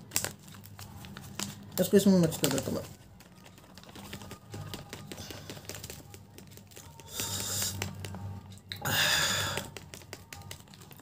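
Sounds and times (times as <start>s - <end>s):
chips clicking and crackling: 0.0s - 11.0s
crisp packet crinkling: 0.0s - 11.0s.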